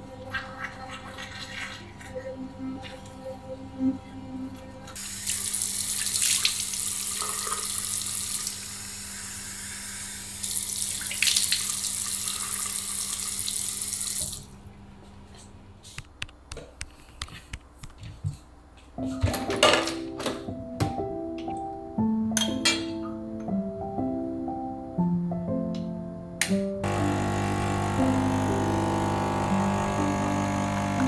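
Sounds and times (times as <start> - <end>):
tap water running into basin: 5.0 - 8.6, 10.4 - 14.5.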